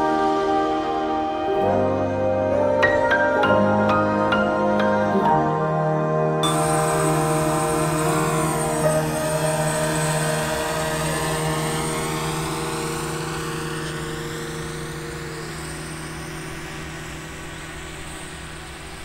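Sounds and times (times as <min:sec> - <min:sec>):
drone propellers humming: 0:00.0 - 0:19.0.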